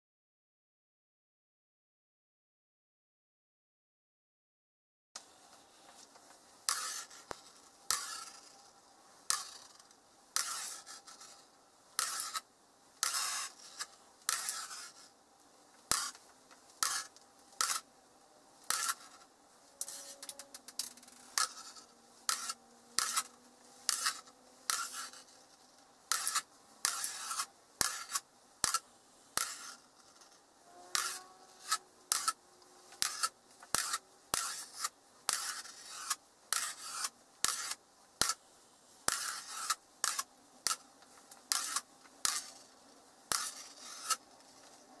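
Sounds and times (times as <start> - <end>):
magnetic metal balls clicking: 19.8 - 28.8, 29.4 - 38.4.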